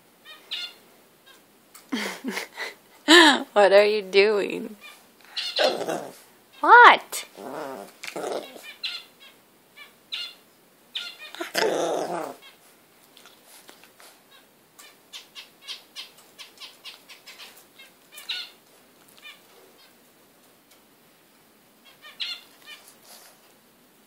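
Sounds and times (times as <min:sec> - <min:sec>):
puppy grunting and snuffling: 0:05.4 - 0:06.3, 0:07.2 - 0:08.7, 0:11.3 - 0:12.5.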